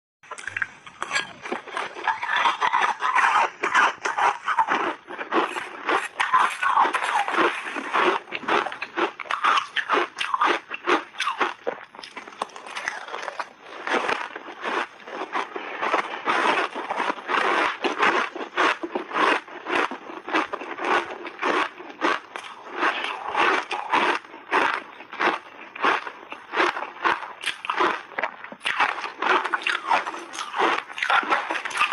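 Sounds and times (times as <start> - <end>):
ice being chewed crunching: 0.3 - 31.9
metal spoon scraping ice: 0.4 - 4.7.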